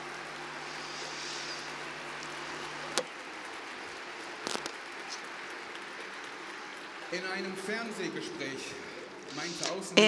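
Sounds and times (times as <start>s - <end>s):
faint hiss: 0.3s - 3.0s, 8.7s - 10.0s.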